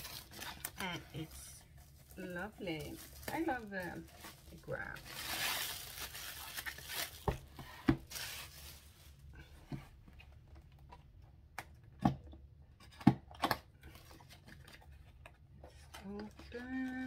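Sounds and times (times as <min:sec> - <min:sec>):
plastic shrink wrap crinkling: 0:00.0 - 0:09.4.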